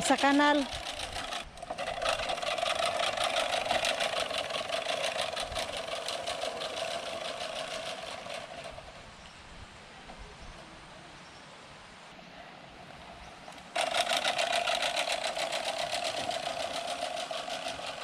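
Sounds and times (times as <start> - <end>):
reel lawn mower clattering: 0.0 - 9.1, 12.9 - 18.0.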